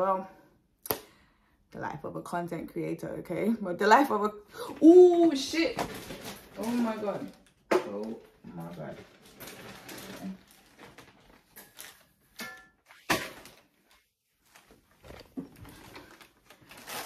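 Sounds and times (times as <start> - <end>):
rustles of objects handled: 5.2 - 17.0.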